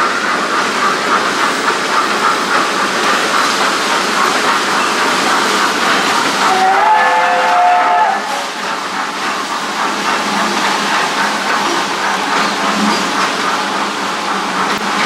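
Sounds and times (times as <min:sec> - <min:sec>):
train running along track: 0:00.0 - 0:15.0
ride train whistle: 0:06.4 - 0:08.6.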